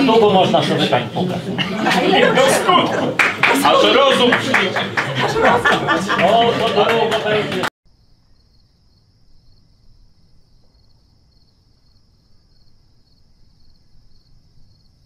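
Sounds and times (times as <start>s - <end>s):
crickets chirping: 7.9s - 15.0s.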